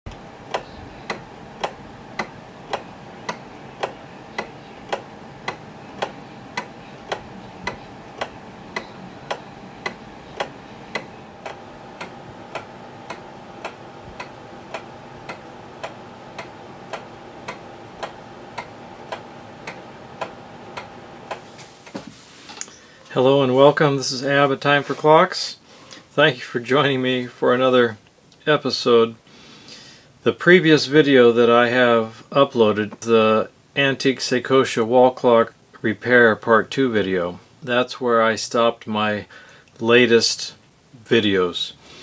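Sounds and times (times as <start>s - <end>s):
pendulum wall clock ticking: 0.1s - 21.6s
faint steady hum: 0.1s - 42.0s.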